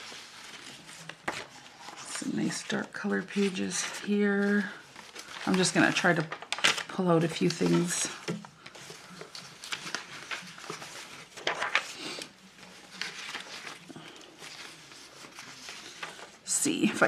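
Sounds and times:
paper scraps rustling: 0.0 - 17.0.

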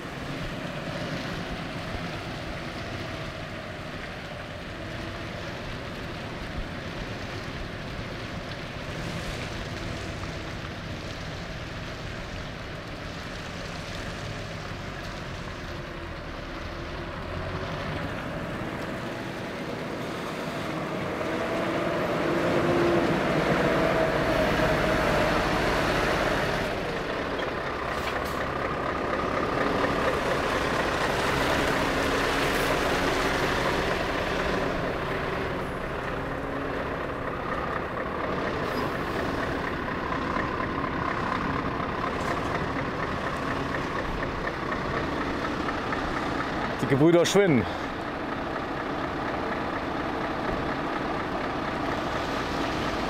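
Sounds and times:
truck engine at low speed: 0.0 - 53.0
tyre noise on wet road: 0.0 - 53.0.

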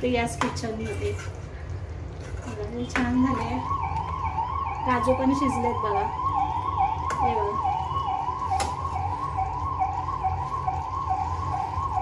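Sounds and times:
siren-like warbling tone: 3.2 - 12.0.

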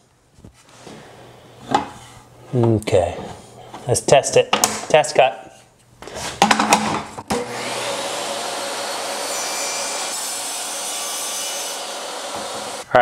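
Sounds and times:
table saw whining: 7.3 - 12.9.

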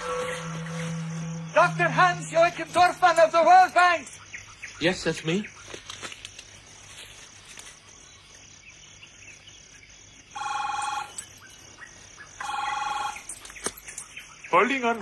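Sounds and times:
telephone ringing: 10.4 - 11.2, 12.4 - 13.3.

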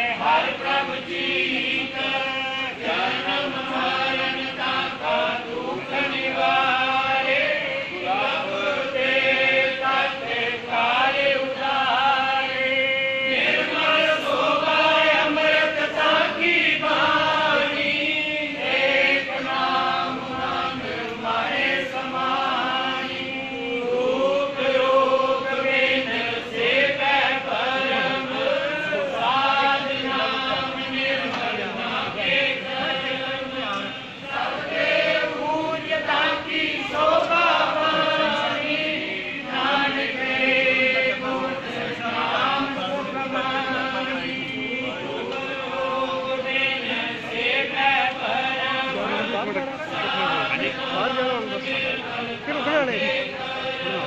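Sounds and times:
men chanting together: 0.0 - 54.0.

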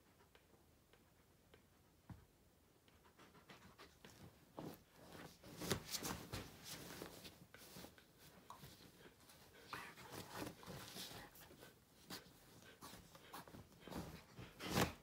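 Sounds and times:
bedding rustling and scratching: 4.1 - 15.0.

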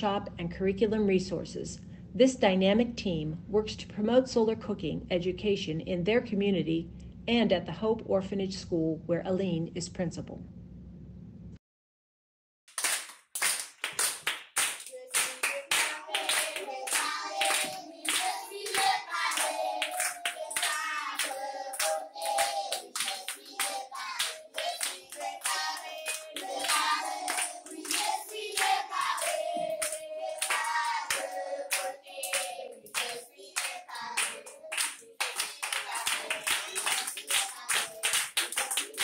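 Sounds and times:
rhythmic clapping: 12.7 - 39.0
children singing: 14.9 - 39.0.

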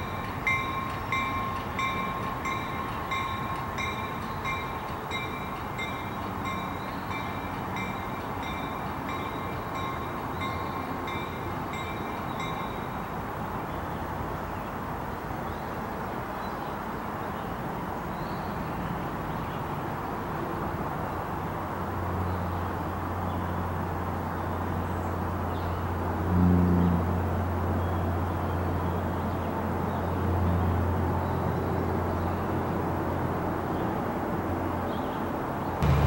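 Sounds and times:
locomotive bell ringing: 0.0 - 13.2.

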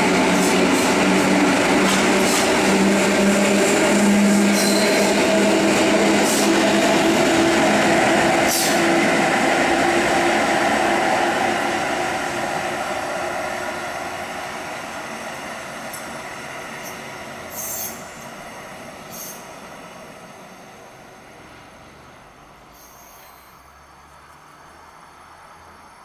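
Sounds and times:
train motor hum: 0.0 - 19.2.

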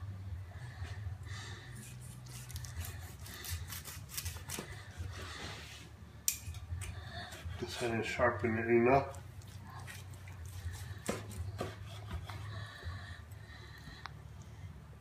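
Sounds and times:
steady low hum: 0.0 - 15.0
knife sawing through crust: 1.8 - 5.6, 7.3 - 8.3, 9.6 - 12.4
knife scraping cutting board: 7.3 - 8.5.

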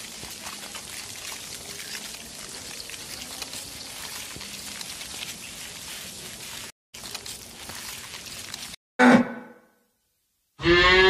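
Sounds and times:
fine crackling patter: 0.0 - 8.8.

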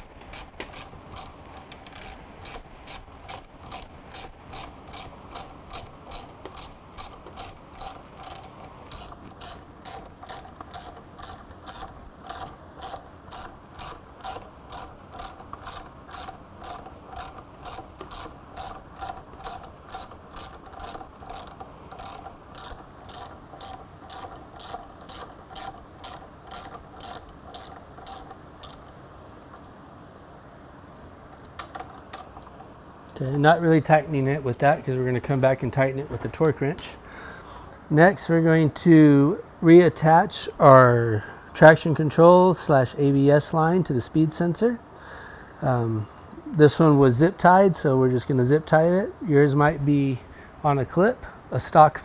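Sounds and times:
ratchet wrench clicking: 0.0 - 29.0.

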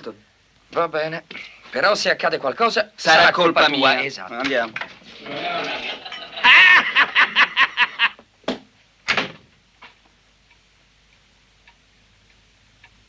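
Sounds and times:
faint small ticks: 9.8 - 13.0.

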